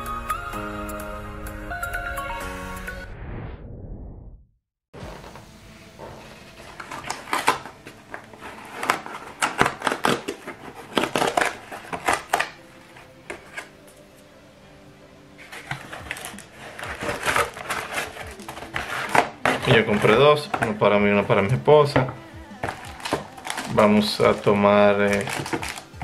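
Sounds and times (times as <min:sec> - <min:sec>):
cardboard rustling: 0:05.0 - 0:14.1, 0:15.4 - 0:26.0
cardboard envelope tearing: 0:06.3 - 0:13.9, 0:15.4 - 0:20.8, 0:22.6 - 0:26.0.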